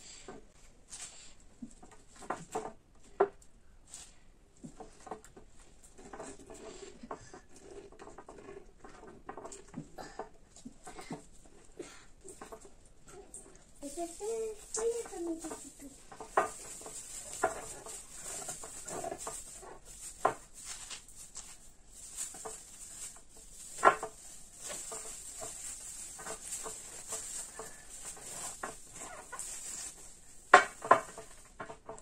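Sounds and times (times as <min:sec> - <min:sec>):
vegetables packed into glass jar: 0:13.8 - 0:31.8.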